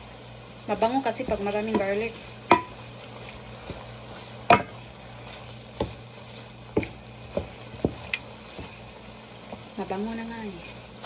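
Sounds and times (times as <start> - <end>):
meat sizzling in a pan: 0.0 - 11.0
wooden spatula knocking on pan: 1.1 - 2.8, 3.6 - 4.8, 5.7 - 6.1, 6.7 - 9.7.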